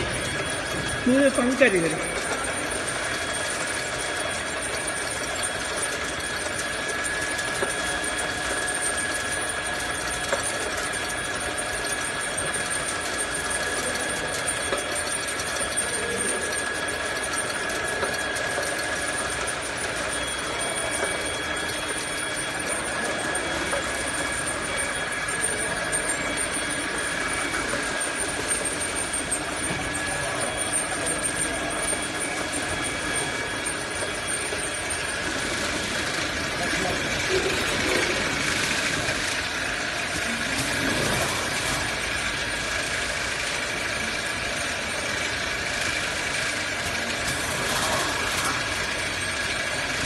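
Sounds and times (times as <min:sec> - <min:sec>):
constant high whine: 0:00.0 - 0:50.0
machinery humming: 0:00.0 - 0:50.0.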